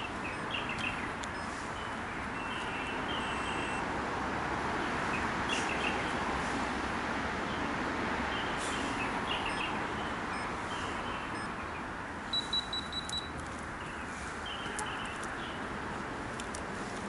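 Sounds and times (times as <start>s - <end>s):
birds chirping: 0.0s - 3.8s, 8.3s - 16.0s
high beeping pips: 3.2s - 3.8s, 12.3s - 13.4s.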